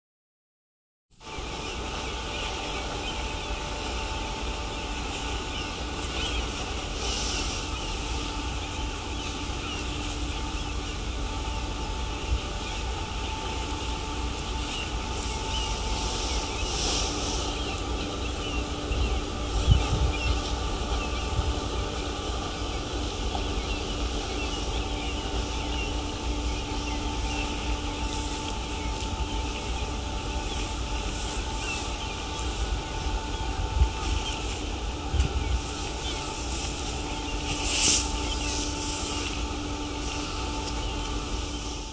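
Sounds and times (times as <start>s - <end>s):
steady mechanical hum: 1.1s - 41.9s
constant wash of noise: 1.2s - 41.9s
faint bird chirps: 1.2s - 41.9s
wind rumble on microphone: 7.8s - 38.8s.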